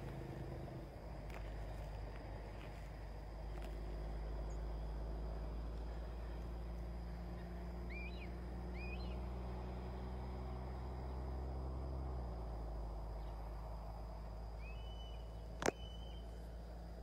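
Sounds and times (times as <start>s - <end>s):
steady low rumble: 0.0s - 17.0s
bird chirping: 7.4s - 9.2s, 14.6s - 16.4s.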